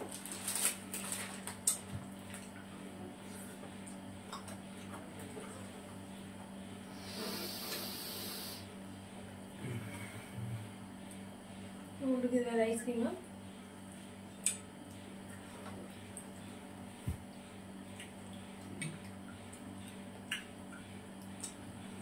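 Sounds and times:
plastic wrapper crinkling and tearing: 0.0s - 2.4s
low steady hum: 0.0s - 22.0s.

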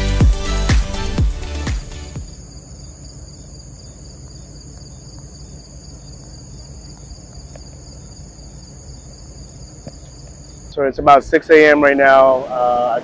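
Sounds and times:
low steady rumble: 2.2s - 11.8s
crickets trilling: 2.3s - 13.0s.

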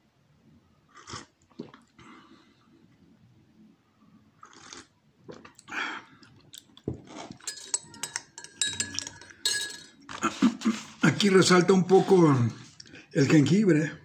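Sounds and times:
slurping sips of tea: 0.9s - 2.0s, 4.4s - 5.6s
metal spoon stirring in mug: 7.3s - 10.0s.

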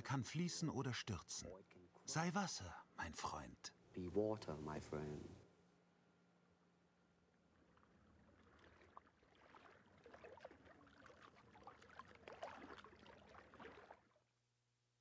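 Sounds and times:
water trickling and lapping: 7.1s - 14.3s
small bubbly plinks: 7.4s - 14.1s.

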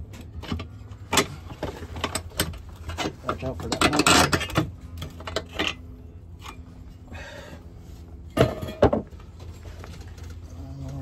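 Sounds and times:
metal tools clinking: 0.4s - 7.0s.

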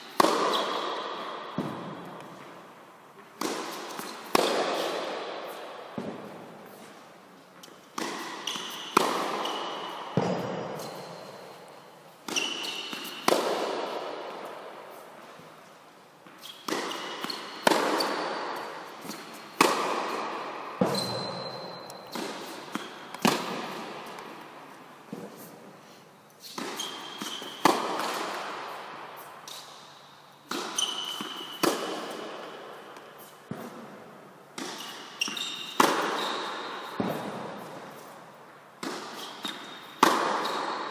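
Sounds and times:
tennis ball hit by racket: 0.1s - 2.5s, 3.4s - 6.5s, 7.6s - 10.9s, 12.2s - 14.7s, 16.4s - 24.3s, 26.5s - 28.7s, 30.5s - 34.0s, 34.6s - 38.0s, 38.8s - 40.8s
tennis ball bouncing on court: 0.1s - 2.6s, 3.3s - 6.5s, 7.6s - 11.2s, 12.2s - 14.6s, 16.3s - 24.4s, 26.6s - 28.5s, 30.5s - 34.0s, 34.6s - 38.0s, 38.8s - 40.8s
high shoe squeaks: 0.4s - 0.8s, 8.3s - 11.7s, 12.3s - 13.2s, 16.4s - 18.3s, 20.8s - 23.2s, 26.4s - 27.7s, 30.7s - 31.6s, 34.7s - 37.0s.

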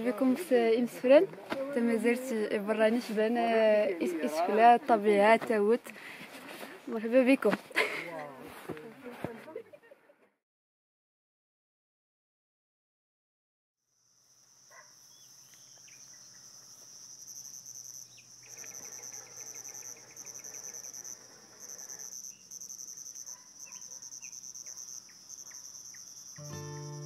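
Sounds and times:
insects chirping: 13.8s - 27.0s.

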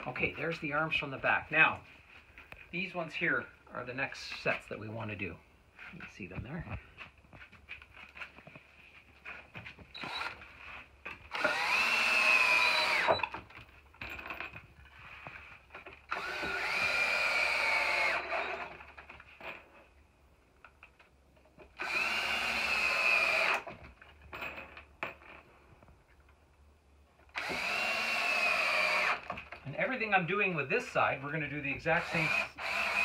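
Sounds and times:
drill driving screws into wood: 9.9s - 10.5s, 11.1s - 13.5s, 16.0s - 19.0s, 21.6s - 23.8s, 27.3s - 29.5s, 31.8s - 33.0s.

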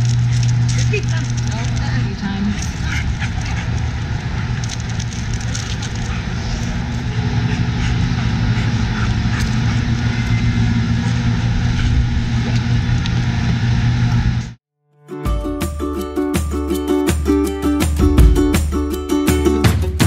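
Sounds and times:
vehicle engine running: 0.0s - 14.6s.

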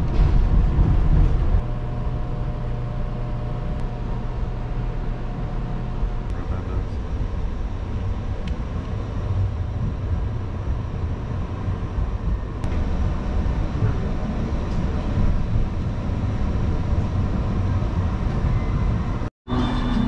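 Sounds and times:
light-rail car low rumble: 0.0s - 20.0s.

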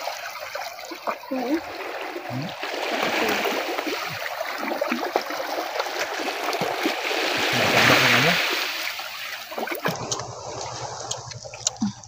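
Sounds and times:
waves washing among rocks: 1.6s - 11.1s.

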